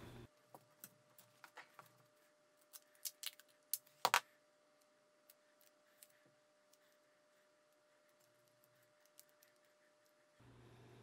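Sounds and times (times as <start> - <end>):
clicks and rustles of cable handling: 0.4 - 4.3.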